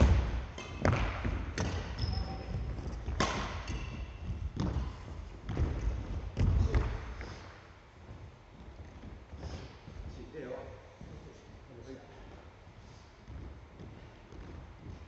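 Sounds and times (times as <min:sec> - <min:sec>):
rackets striking shuttlecock: 0:00.0 - 0:02.4, 0:03.0 - 0:04.8
shoe squeaks: 0:01.7 - 0:02.8.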